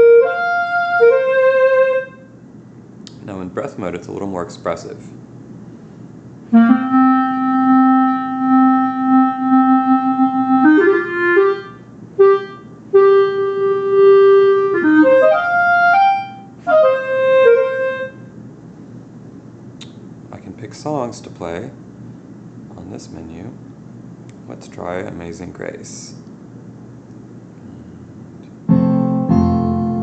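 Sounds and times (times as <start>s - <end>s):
synthesized clarinet notes: 0.0s - 2.4s, 6.5s - 18.4s.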